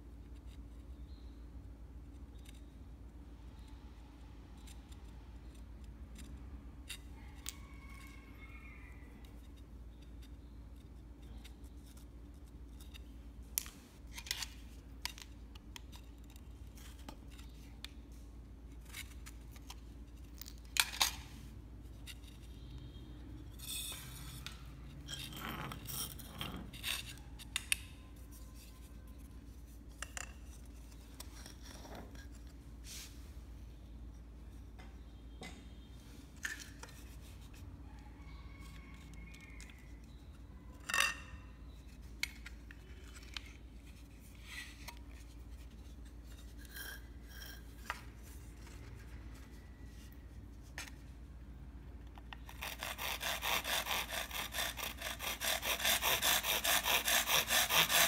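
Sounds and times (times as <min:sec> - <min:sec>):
fast regular sawing: 0:52.5 - 0:58.0.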